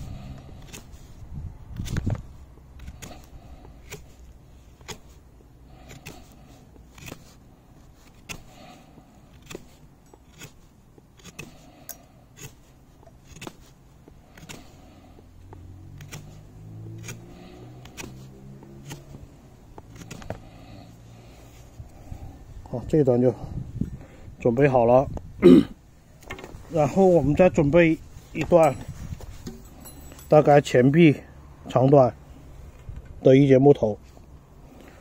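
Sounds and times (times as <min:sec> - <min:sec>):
knife shaving green stick: 0:00.0 - 0:22.3.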